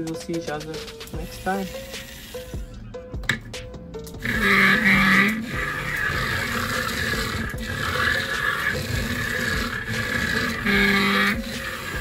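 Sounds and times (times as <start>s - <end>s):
small gear motors whining: 4.2s - 12.0s.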